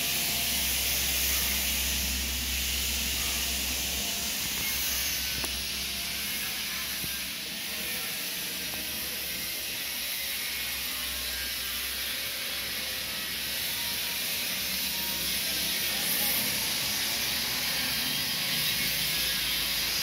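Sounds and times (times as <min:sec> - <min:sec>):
steady high hiss: 0:00.0 - 0:09.2.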